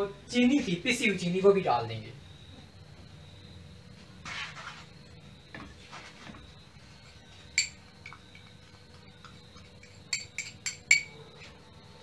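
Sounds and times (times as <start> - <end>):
faint steady hum: 0.0 - 12.0
glass bowl clinking on pan: 9.8 - 11.1.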